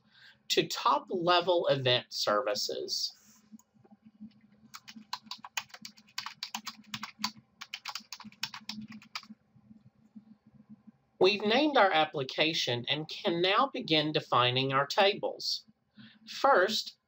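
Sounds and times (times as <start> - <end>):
typing on computer keyboard: 4.7 - 9.3.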